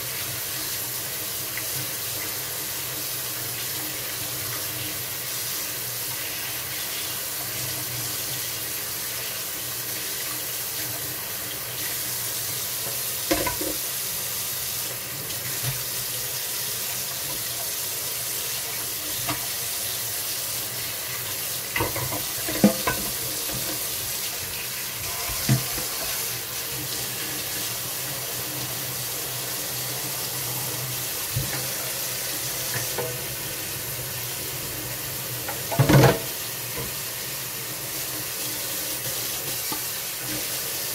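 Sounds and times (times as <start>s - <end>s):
tap water running into sink: 0.0s - 40.9s
dishes clinking: 13.3s - 13.8s, 21.7s - 23.8s.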